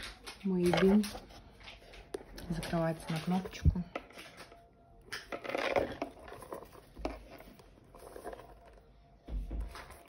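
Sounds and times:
leather rubbing and rustling: 5.6s - 8.9s.

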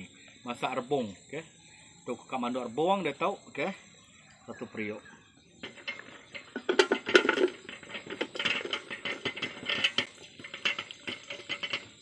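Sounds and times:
bamboo pieces clattering into metal pot: 5.6s - 12.0s.

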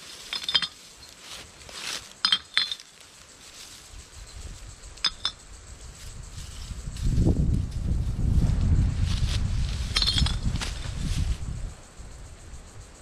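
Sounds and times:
drink containers clinking: 0.3s - 0.8s.

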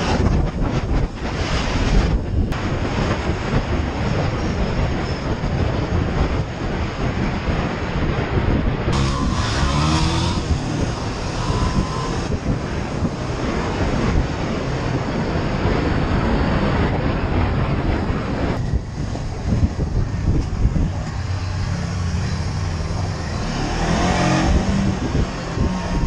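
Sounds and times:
wind rush on microphone: 0.0s - 26.0s
motorcycle engine running: 8.9s - 14.6s.

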